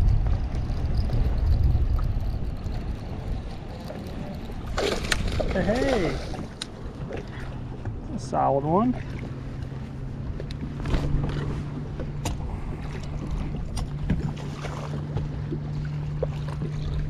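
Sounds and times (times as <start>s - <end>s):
boat engine low hum: 0.0s - 17.0s
fish splashing: 4.6s - 6.6s.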